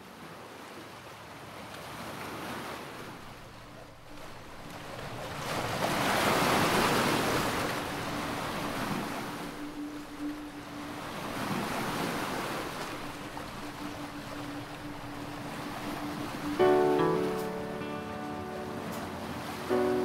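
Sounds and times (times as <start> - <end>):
sea surf washing on shore: 0.0 - 20.0
wind: 0.0 - 20.0
faint low held tone: 7.8 - 20.0.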